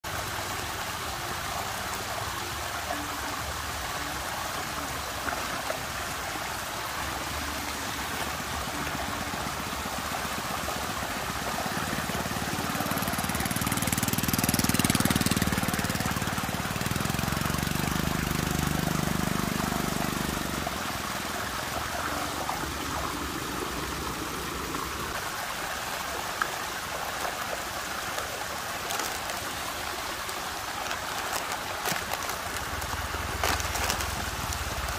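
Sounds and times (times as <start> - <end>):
water swirling in a whirlpool: 0.0 - 34.9.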